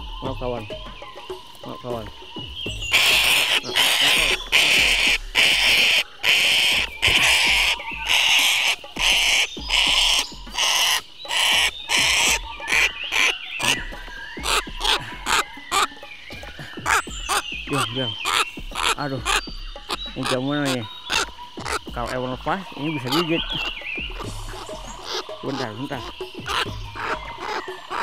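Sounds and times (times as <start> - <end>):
cockatoo screeching: 2.8 - 15.9, 16.8 - 28.0
wing flapping: 2.9 - 12.9.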